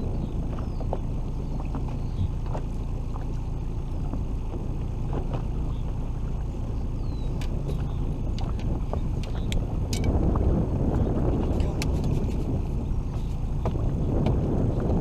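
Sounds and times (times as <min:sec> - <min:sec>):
boat engine low rumble: 0:00.0 - 0:15.0
water splashes: 0:00.0 - 0:15.0.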